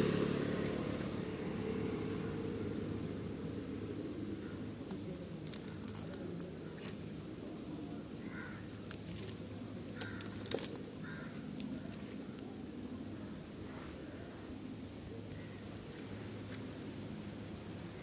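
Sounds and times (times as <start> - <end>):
low outdoor rumble: 0.0 - 18.0
packaging crackling and clicking: 4.9 - 7.0, 10.0 - 10.8.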